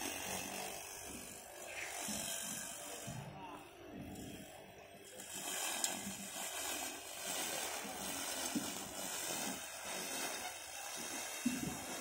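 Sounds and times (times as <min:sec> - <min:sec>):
lawn mower whirring over grass: 0:00.0 - 0:12.0.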